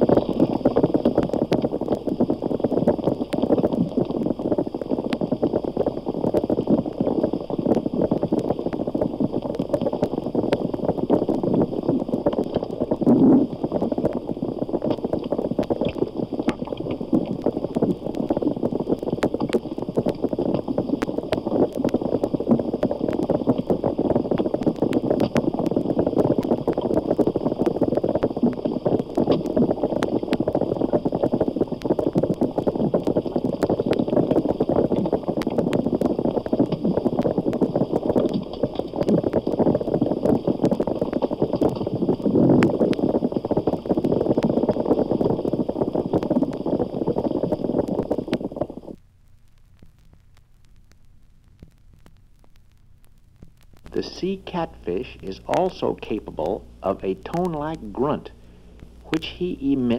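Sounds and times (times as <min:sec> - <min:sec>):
underwater fish clicking crackle: 0:00.0 - 0:59.9.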